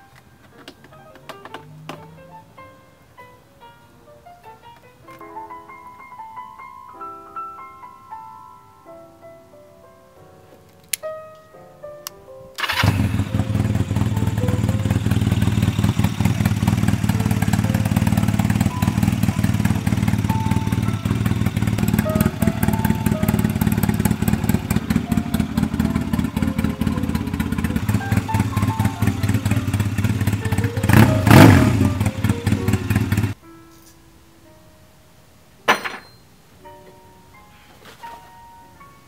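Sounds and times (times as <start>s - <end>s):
engine revving: 12.6s - 33.4s
motorcycle engine idling: 12.6s - 33.4s.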